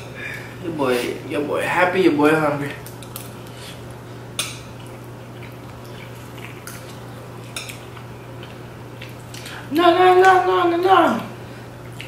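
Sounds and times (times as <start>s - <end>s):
steady low hum: 0.0s - 12.0s
fork clicking against dishes: 7.5s - 9.4s.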